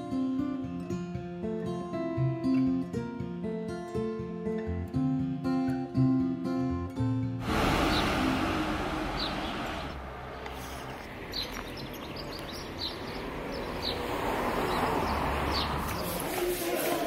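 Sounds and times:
small birds chirping: 0:09.0 - 0:16.3.

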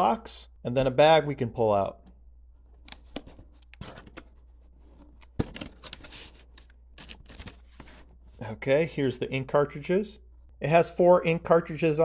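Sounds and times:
packaging rustling and scraping: 0:02.9 - 0:08.3.

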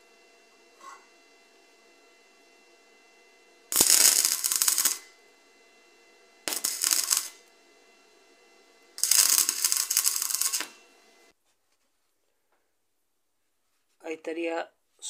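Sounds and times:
welding arc crackling: 0:03.7 - 0:05.2, 0:06.4 - 0:07.6, 0:08.9 - 0:11.3.

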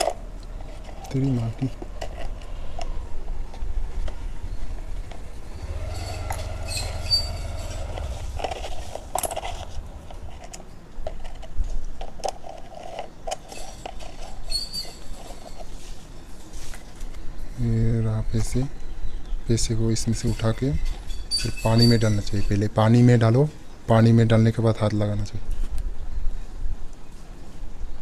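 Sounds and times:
low background rumble: 0:00.0 - 0:12.2.

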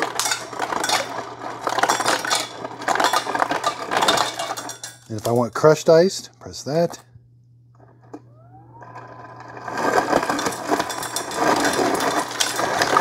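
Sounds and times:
ice dispenser motor humming: 0:00.0 - 0:05.8, 0:07.8 - 0:13.0
crushed ice rattling into steel tumbler: 0:00.0 - 0:05.9, 0:09.0 - 0:13.0.

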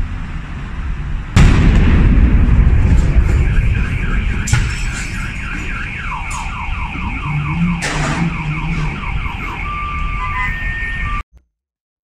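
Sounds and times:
steady low rumble: 0:00.0 - 0:10.2
car alarm falling tones: 0:02.6 - 0:11.2.

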